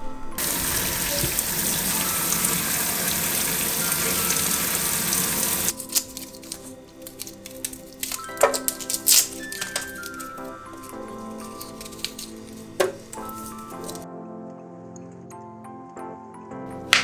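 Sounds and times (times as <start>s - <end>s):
background music: 0.0s - 17.0s
tap water running into a sink: 0.4s - 5.7s
garlic peeling clicks and rustles: 5.6s - 14.0s.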